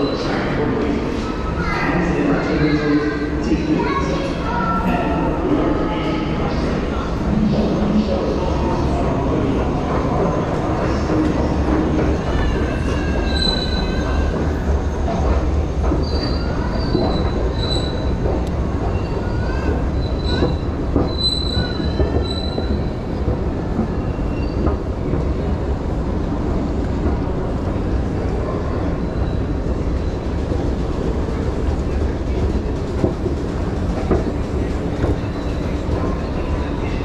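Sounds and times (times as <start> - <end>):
subway train rumbling: 0.0 - 37.0
train wheels squealing: 12.2 - 14.4, 16.0 - 18.2, 18.8 - 23.0, 24.0 - 24.8.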